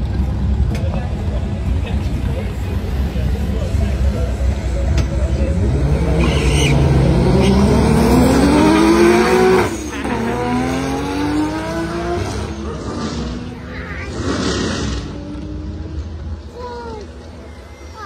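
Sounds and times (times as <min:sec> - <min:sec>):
cars accelerating hard: 0:04.3 - 0:16.3.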